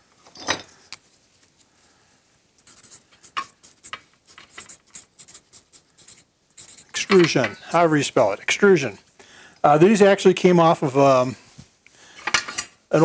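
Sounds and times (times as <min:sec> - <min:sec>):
handling sound: 0:02.5 - 0:07.6
marker scratching on paper: 0:02.6 - 0:07.3.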